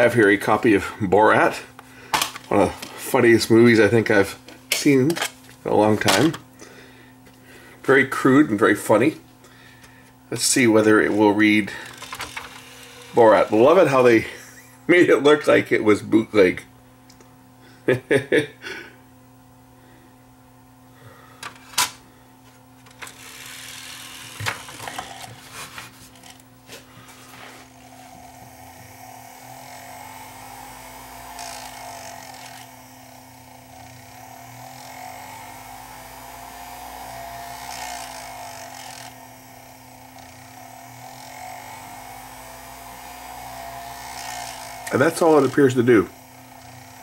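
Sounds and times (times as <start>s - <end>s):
disc player motor whining: 9.8s - 14.8s, 22.7s - 47.0s.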